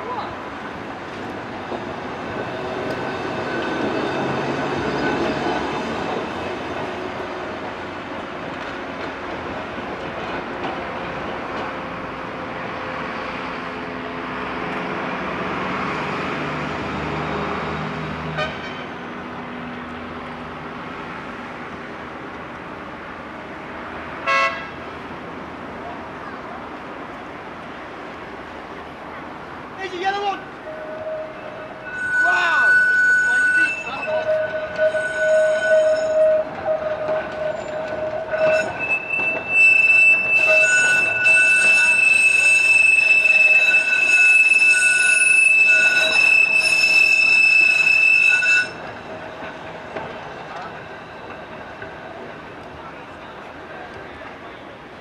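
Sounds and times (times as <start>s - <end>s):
road traffic: 0.0s - 55.0s
trams rumbling on track: 0.0s - 55.0s
tram horn toot: 18.2s - 19.0s, 24.2s - 24.9s, 30.5s - 49.0s.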